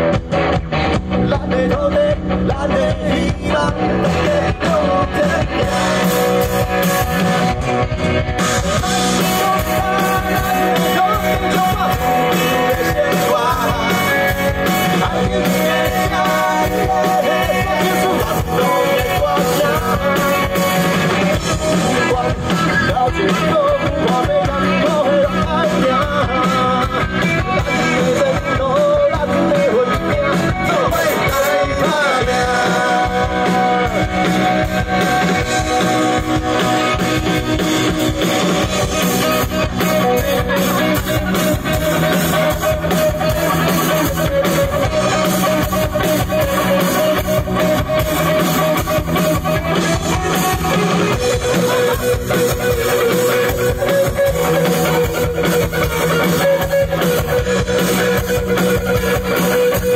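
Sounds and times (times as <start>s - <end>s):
bass guitar: 0.0s - 59.9s
drum kit: 0.0s - 59.9s
electric guitars: 0.0s - 59.9s
man singing into a microphone: 1.2s - 6.4s, 8.5s - 37.1s, 38.0s - 50.3s.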